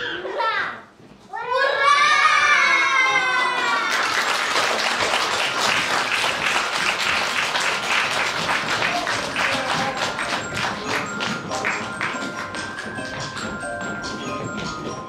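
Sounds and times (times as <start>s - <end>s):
audience applauding: 3.5s - 13.4s
music: 5.6s - 15.0s.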